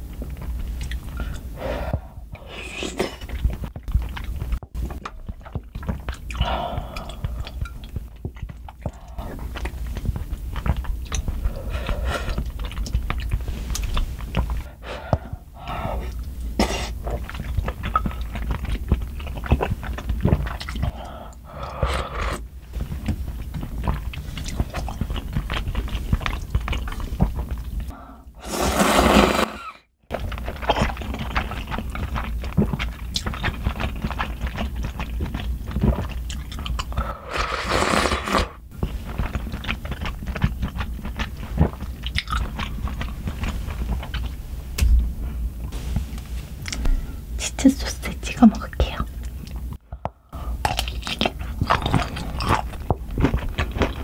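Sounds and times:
chewing: 0:02.4 - 0:16.4, 0:17.0 - 0:28.0, 0:30.1 - 0:44.4, 0:50.5 - 0:54.0
slurping noodles: 0:15.7 - 0:22.5, 0:27.9 - 0:36.2, 0:36.9 - 0:43.8
loud slurp of broth: 0:28.4 - 0:29.8, 0:37.2 - 0:38.6.

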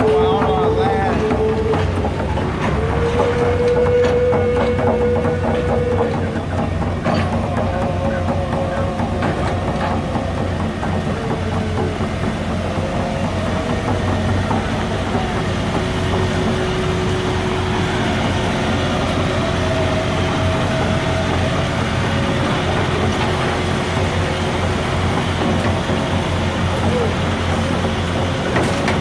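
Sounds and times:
diesel machinery engine drone: 0:00.0 - 0:29.0.

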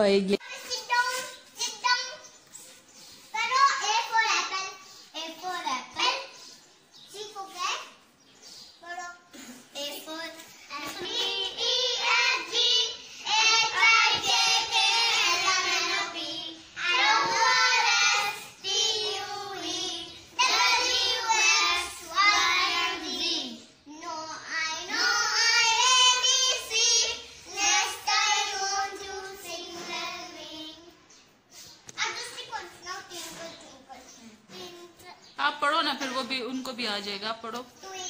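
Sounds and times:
girl singing unaccompanied: 0:09.8 - 0:31.2.

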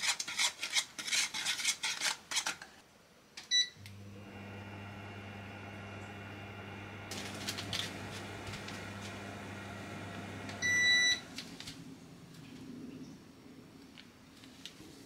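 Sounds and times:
electric cooktop humming: 0:03.6 - 0:12.4
short beep: 0:10.6 - 0:11.2.

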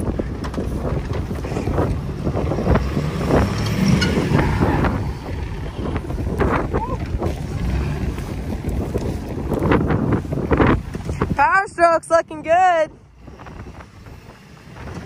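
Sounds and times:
diesel engine under load: 0:00.0 - 0:15.0
wind buffeting microphone: 0:00.0 - 0:15.0.

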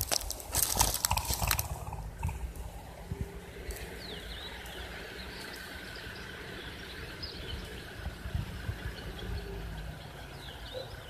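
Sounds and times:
low rumble: 0:00.1 - 0:10.4
bird chirps: 0:01.0 - 0:11.0.

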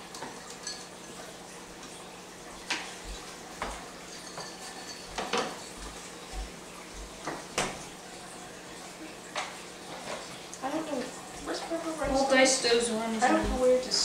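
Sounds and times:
utensils knocking and clinking: 0:04.1 - 0:05.6.

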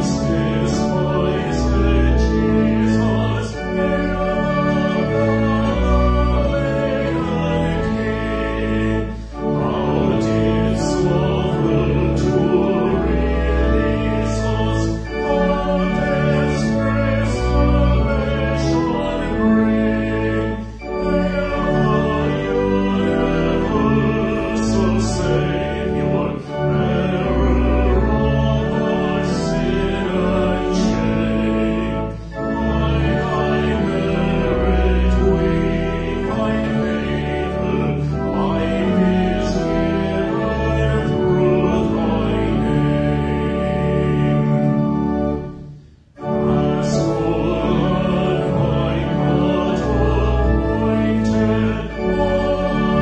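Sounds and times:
keyboard accompaniment: 0:00.0 - 0:53.0
voices singing a hymn: 0:00.0 - 0:53.0.

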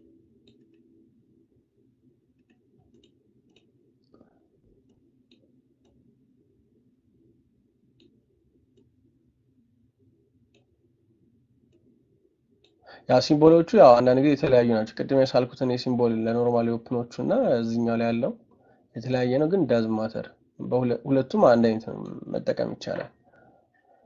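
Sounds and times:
low room hum: 0:00.0 - 0:24.0
computer mouse clicks: 0:00.4 - 0:00.9, 0:02.4 - 0:03.8, 0:08.0 - 0:08.9.

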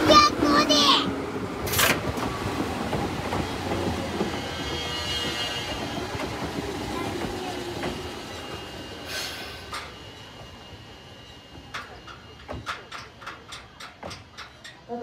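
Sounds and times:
electric train rolling rumble: 0:00.0 - 0:15.0
wheel clacks on rails: 0:11.6 - 0:15.0.

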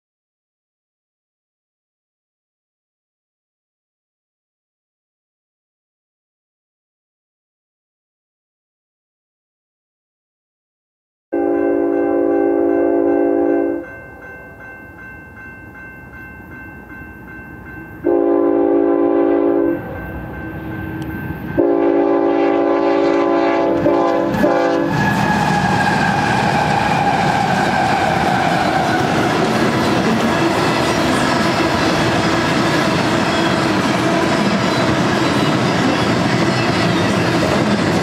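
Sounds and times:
locomotive air horn blasts: 0:11.4 - 0:13.8, 0:18.0 - 0:19.8, 0:21.6 - 0:28.8.

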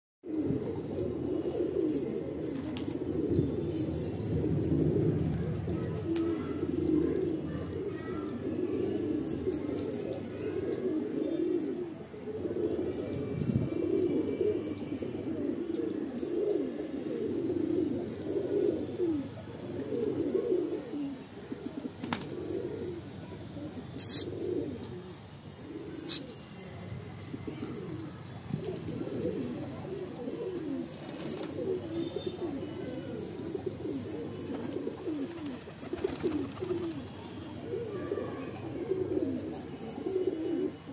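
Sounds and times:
pigeons cooing: 0:00.2 - 0:40.9.

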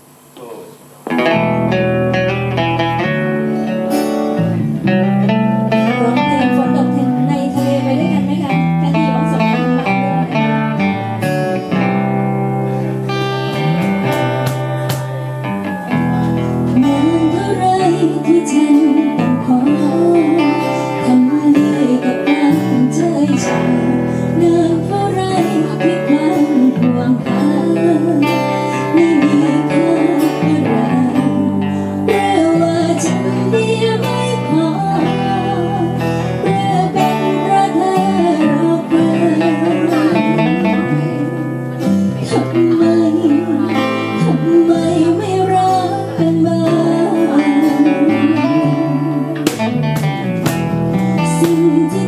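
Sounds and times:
small guitar: 0:00.0 - 0:52.0
strummed acoustic guitars: 0:01.0 - 0:52.0
woman singing a slow ballad: 0:05.6 - 0:11.0, 0:16.4 - 0:49.6, 0:50.9 - 0:52.0
cajon: 0:13.2 - 0:17.7, 0:46.7 - 0:52.0.

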